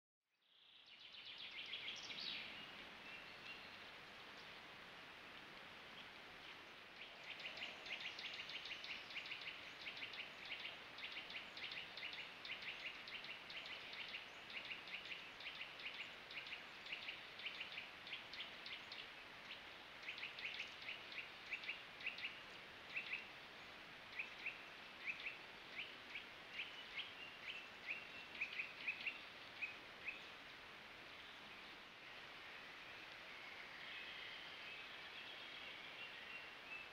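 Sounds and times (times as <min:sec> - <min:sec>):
faint steady hiss: 0:00.3 - 0:36.9.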